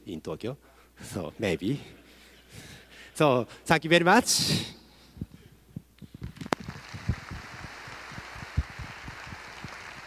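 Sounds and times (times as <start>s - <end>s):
audience applauding: 6.6s - 10.0s.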